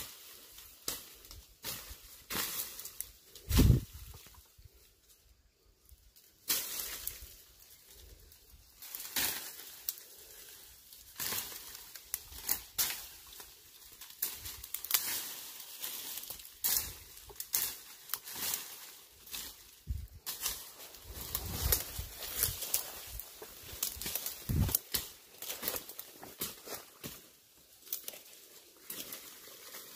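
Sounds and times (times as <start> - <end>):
leaves and twigs rustling: 0.0 - 29.9
twigs snapping: 11.0 - 29.9.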